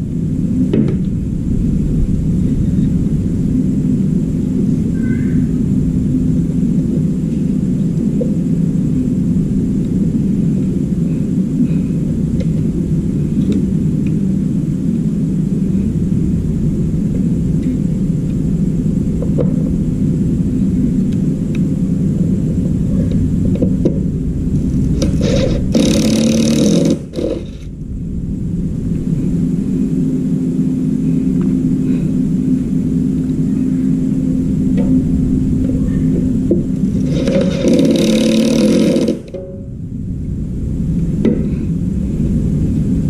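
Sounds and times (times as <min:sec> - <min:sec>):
reciprocating saw cutting metal: 0:24.9 - 0:27.7, 0:37.0 - 0:39.4.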